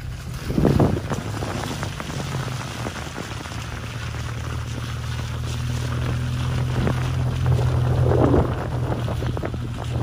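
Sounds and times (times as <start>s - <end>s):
tyres and suspension rattling: 0.0s - 10.0s
vehicle engine humming: 0.0s - 10.0s.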